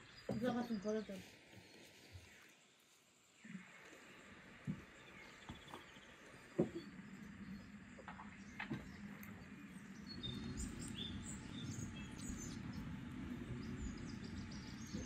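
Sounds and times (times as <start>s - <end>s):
small birds chirping: 0.0s - 15.0s
low steady rumble: 6.0s - 15.0s.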